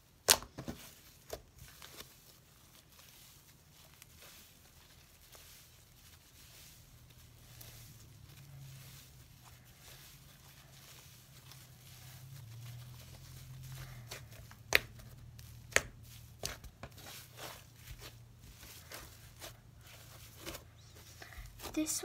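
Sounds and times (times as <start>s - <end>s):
slime squishing: 0.0s - 22.0s
slime air pockets popping: 0.2s - 0.8s.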